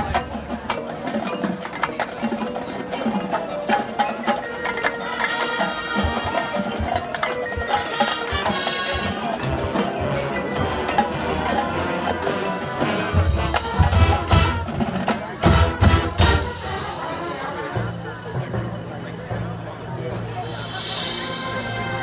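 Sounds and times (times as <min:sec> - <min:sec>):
marimbas and vibraphones notes: 0:00.0 - 0:14.8
marching band playing: 0:00.0 - 0:19.6, 0:20.2 - 0:22.0.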